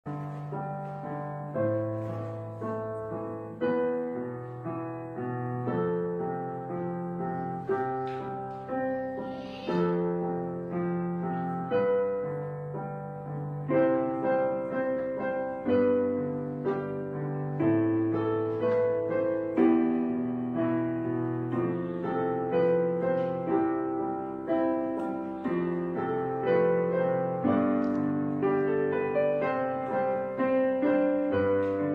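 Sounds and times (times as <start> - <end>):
slow solo piano music: 0.0 - 31.9.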